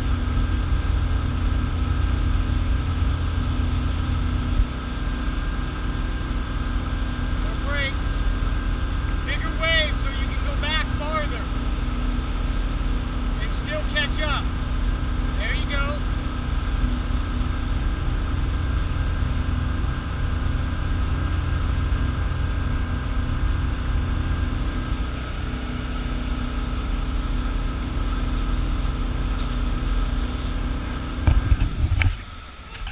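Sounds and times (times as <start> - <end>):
boat engine running: 0.0 - 32.9
churning wake rumble: 0.0 - 32.9.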